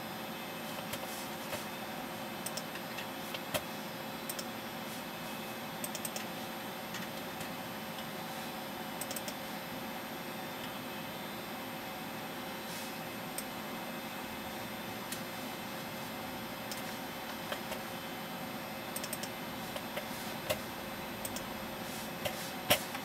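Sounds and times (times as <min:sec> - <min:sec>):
computer fan hum: 0:00.0 - 0:23.0
mouse and keyboard clicks: 0:19.0 - 0:20.6.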